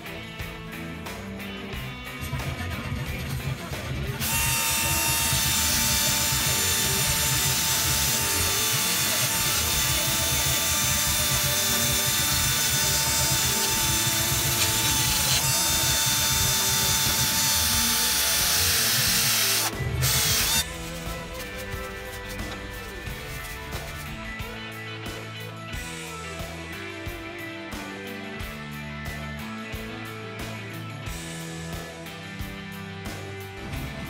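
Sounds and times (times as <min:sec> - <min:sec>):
cordless drill whine: 0:04.2 - 0:20.8
wire brush scrubbing rusty steel: 0:04.2 - 0:24.4.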